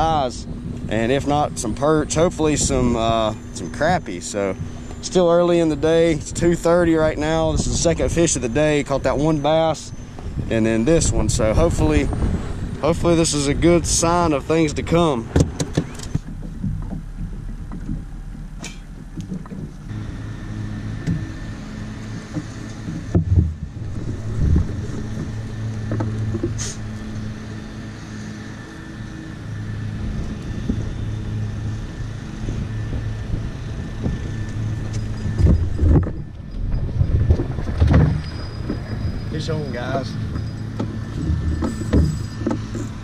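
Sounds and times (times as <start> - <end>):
boat motor running: 0.0 - 43.0
wind noise on microphone: 5.7 - 20.3, 22.3 - 26.9, 29.6 - 43.0.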